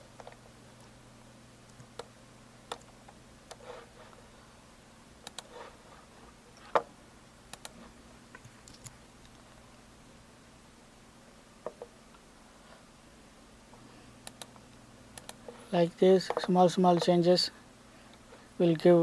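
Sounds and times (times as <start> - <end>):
faint low hum: 0.0 - 19.0
computer mouse clicks: 2.7 - 3.6, 5.2 - 5.5, 7.5 - 7.8, 8.4 - 9.4, 14.2 - 15.6.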